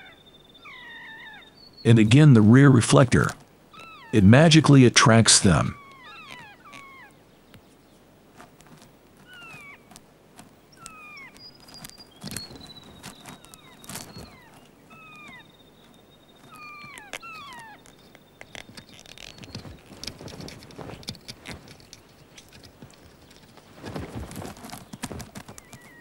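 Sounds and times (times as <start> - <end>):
parrot mewing calls: 0.0 - 1.5, 3.7 - 4.2, 5.7 - 7.2, 16.4 - 17.8
wings flapping: 8.3 - 26.0.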